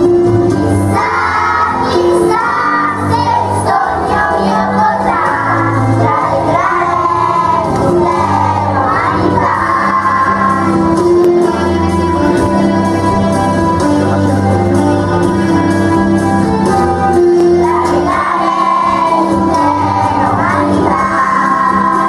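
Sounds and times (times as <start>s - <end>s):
children's choir singing: 0.0s - 12.1s, 16.9s - 22.0s
instrumental accompaniment: 0.0s - 22.0s.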